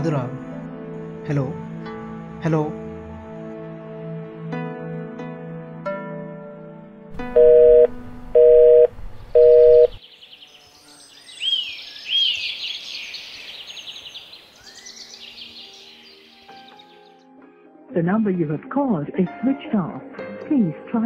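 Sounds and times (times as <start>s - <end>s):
soft background music: 0.0s - 11.4s, 14.4s - 21.0s
phone line beeps: 7.2s - 10.0s
birds chirping: 7.4s - 17.2s.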